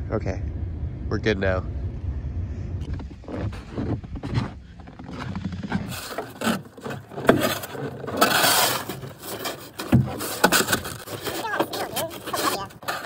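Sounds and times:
shovel scraping snow: 3.3 - 13.0.

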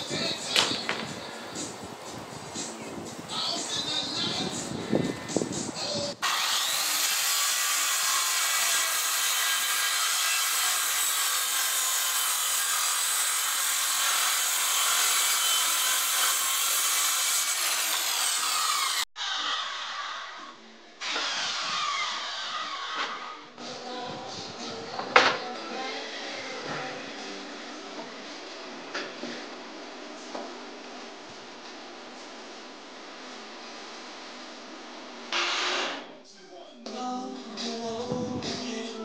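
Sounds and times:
board being handled: 0.5 - 1.1
circular saw cutting wood: 6.2 - 23.5.

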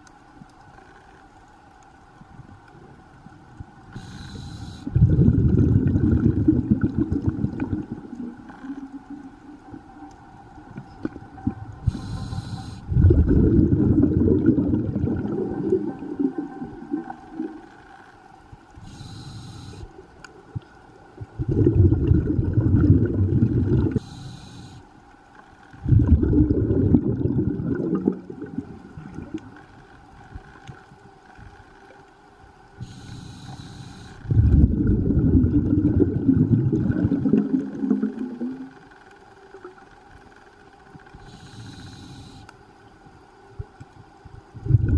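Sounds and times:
faint steady hum: 0.0 - 44.9
regulator hissing inhale: 3.9 - 5.4, 11.8 - 13.1, 18.8 - 20.0, 23.9 - 25.0, 32.8 - 34.4, 41.2 - 42.6
bubbling exhale: 4.0 - 8.9, 11.4 - 17.6, 21.4 - 24.8, 25.8 - 29.4, 32.8 - 38.7, 44.6 - 44.9.

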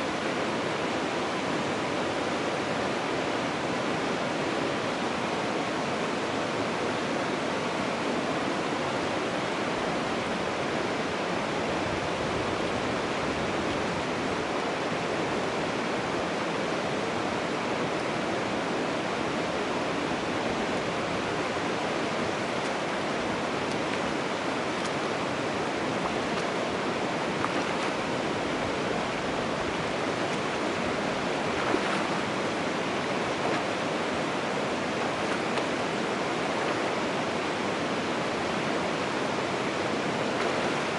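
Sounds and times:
running water rushing: 0.0 - 40.9
faint splashes: 29.6 - 34.3.

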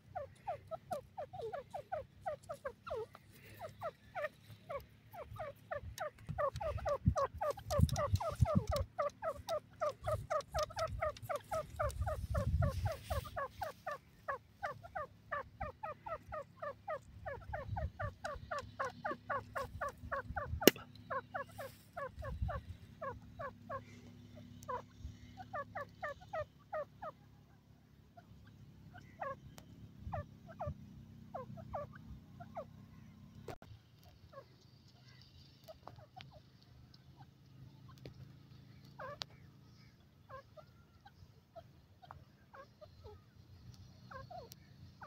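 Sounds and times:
sharp click: 20.6 - 21.0.

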